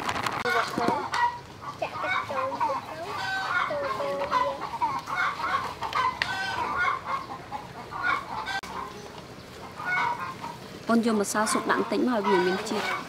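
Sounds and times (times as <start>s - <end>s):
chickens clucking: 0.4s - 13.0s.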